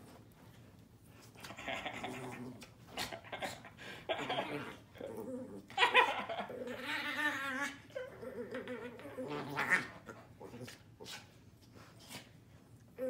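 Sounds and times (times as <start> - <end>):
small dog growling: 1.4 - 11.1.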